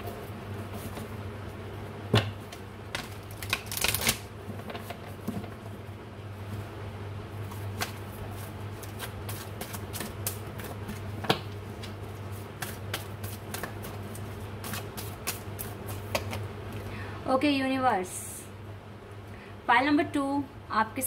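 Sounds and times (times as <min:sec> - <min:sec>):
low steady hum: 0:00.0 - 0:21.0
cards being shuffled: 0:03.0 - 0:05.0, 0:07.5 - 0:16.4.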